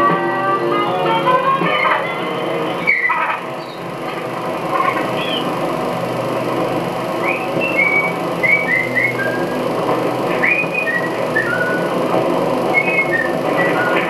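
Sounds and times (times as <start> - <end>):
dense background noise: 0.0 - 14.0
high whistled notes sliding in pitch: 1.3 - 3.8, 7.2 - 9.6, 10.4 - 11.9, 12.7 - 14.0.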